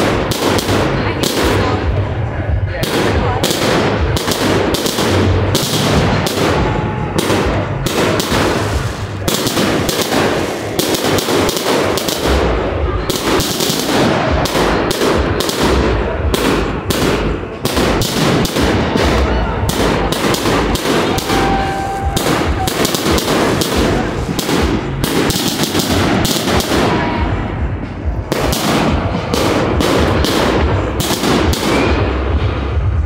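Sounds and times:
fireworks bangs: 0.0s - 33.0s.

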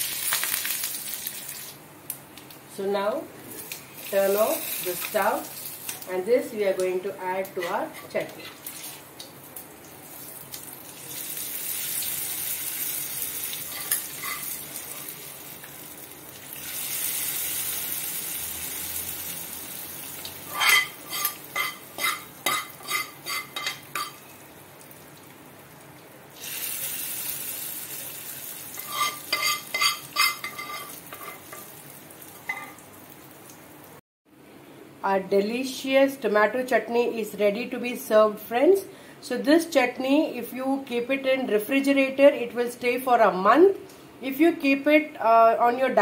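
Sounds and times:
hot oil sizzling: 0.0s - 1.8s, 3.5s - 34.0s
metal spoon scraping a pan: 7.6s - 8.6s, 13.7s - 14.6s, 20.5s - 24.2s, 28.8s - 31.7s.

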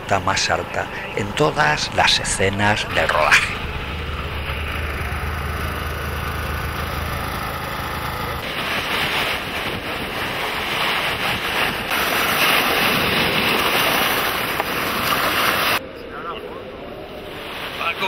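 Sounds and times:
motorcycle engine idling: 0.6s - 8.5s
wind on microphone: 8.4s - 15.0s
waves washing onto pebbles: 8.4s - 15.8s.

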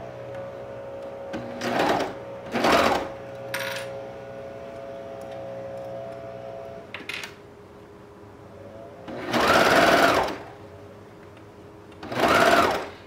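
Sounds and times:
serger sewing machine running: 1.3s - 3.2s, 9.1s - 10.5s, 12.0s - 13.0s.

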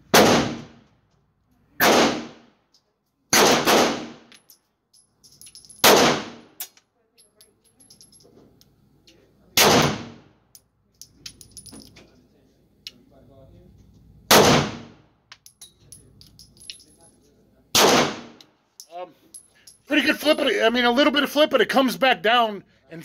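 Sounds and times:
pistol shots echoing indoors: 0.1s - 0.9s, 1.8s - 2.5s, 3.3s - 4.3s, 5.8s - 6.7s, 9.6s - 10.3s, 14.3s - 15.1s, 17.8s - 18.5s
faint metallic clinks: 4.3s - 5.8s, 7.1s - 8.7s, 10.5s - 12.2s, 15.4s - 17.4s, 18.8s - 20.6s.

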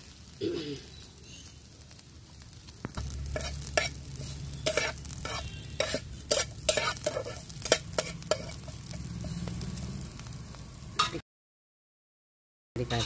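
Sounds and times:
onion sizzling in oil: 0.0s - 11.2s
spatula scraping pan: 3.2s - 9.4s.

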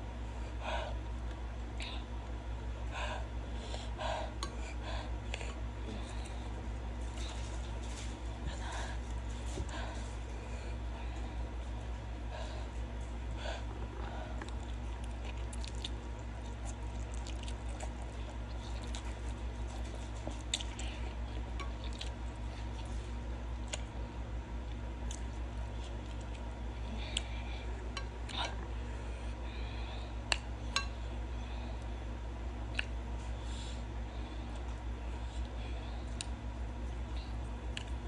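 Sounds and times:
steady low hum: 0.0s - 38.0s
wet chewing and slurping: 14.4s - 23.0s.

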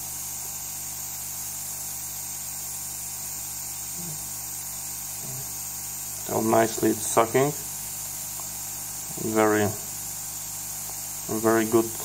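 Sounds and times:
air pump humming: 0.0s - 12.0s.

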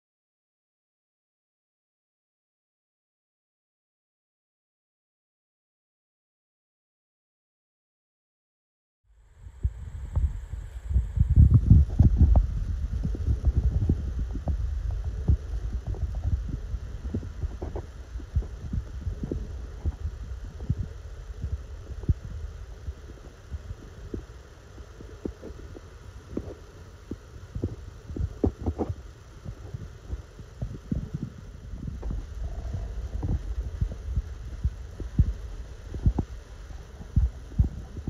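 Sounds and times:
low rumble: 9.2s - 38.0s.

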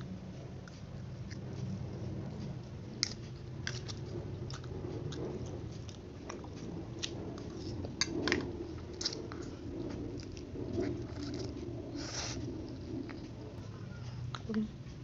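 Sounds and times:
chewing and slurping noodles: 0.0s - 13.6s.

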